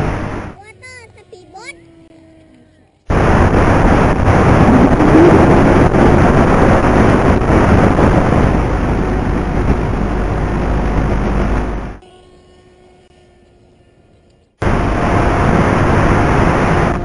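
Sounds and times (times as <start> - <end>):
rushing wind noise: 0.0 - 0.6, 3.1 - 12.0, 14.6 - 17.0.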